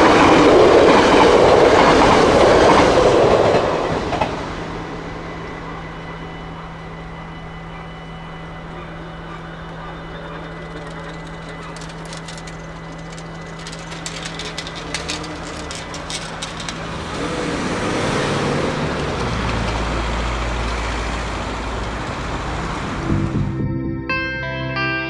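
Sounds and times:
barrier motor hum: 5.2 - 23.7
car driving past: 16.9 - 23.6.

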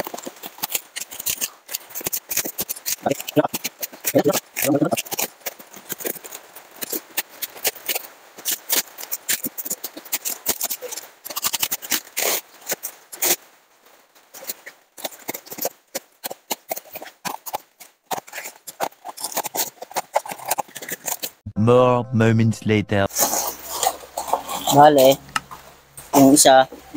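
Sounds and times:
utility knife cutting tape and cardboard: 0.0 - 13.4, 14.4 - 21.3.

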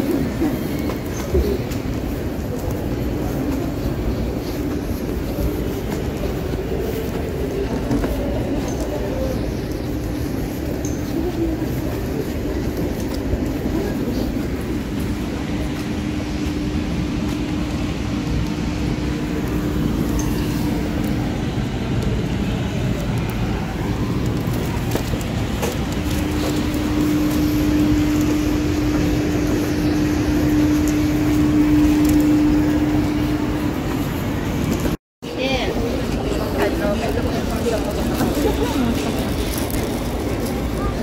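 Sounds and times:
steady hum: 0.0 - 35.0
train rumbling: 0.0 - 41.0.

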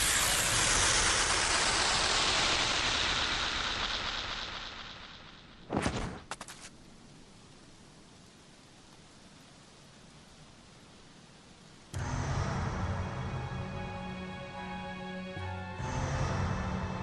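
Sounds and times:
rushing noise: 0.0 - 6.7
sharp impact: 0.0 - 6.7.

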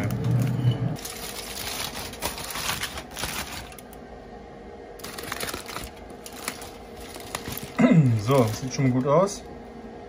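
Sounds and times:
aluminium foil crinkling: 1.0 - 4.0, 5.0 - 9.5.

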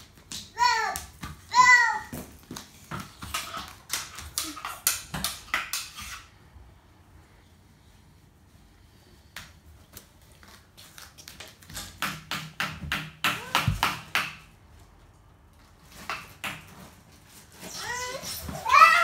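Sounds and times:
toddler tapping and slapping: 0.0 - 6.2, 11.2 - 14.5.

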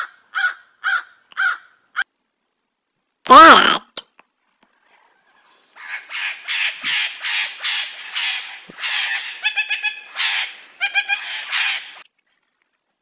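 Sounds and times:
parrot squawking: 5.8 - 12.0
parrot tuneful chatter: 5.8 - 12.0.

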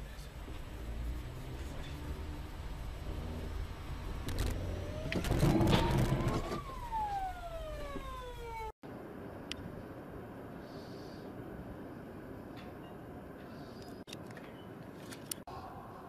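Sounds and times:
low road noise: 0.0 - 16.0
rising and falling wail: 0.8 - 8.8.

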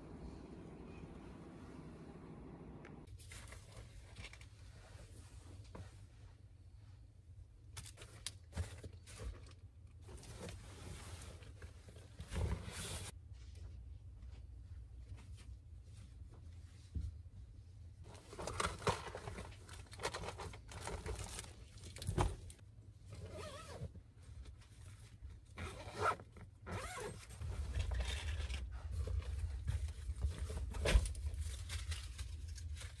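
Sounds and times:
low steady hum: 0.0 - 33.0
fabric rustling and scraping: 10.0 - 21.7.

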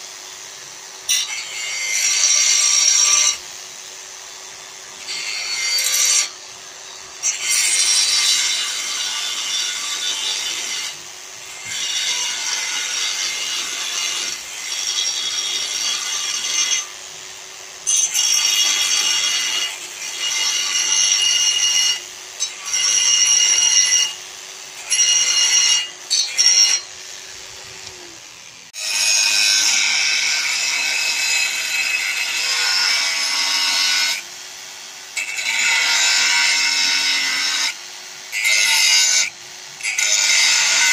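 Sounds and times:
angle grinder screeching on steel: 0.0 - 40.9
motor humming: 26.9 - 28.7.

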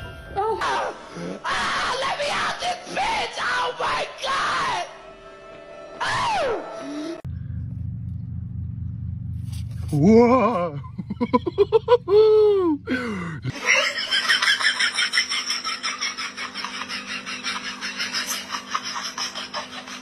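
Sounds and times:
person crying out: 9.9 - 10.9, 11.9 - 13.5
person laughing breathily: 10.7 - 13.9.

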